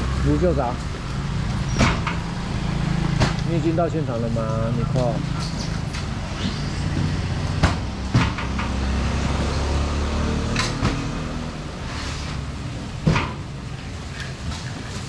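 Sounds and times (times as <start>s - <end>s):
vehicle engine humming: 0.0s - 15.0s
boxes knocking and banging: 6.9s - 8.8s.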